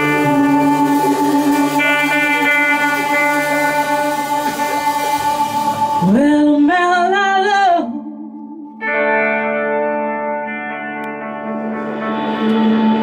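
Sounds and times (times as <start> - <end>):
woman singing with vibrato: 0.0 - 9.4
electric guitar ringing notes: 0.0 - 13.0.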